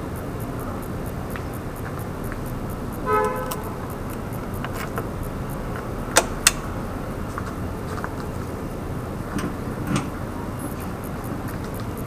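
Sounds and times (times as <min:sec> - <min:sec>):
sharp clicks: 0:00.0 - 0:06.8, 0:09.3 - 0:12.0
background noise: 0:00.0 - 0:12.0
vehicle horn toot: 0:03.0 - 0:03.9.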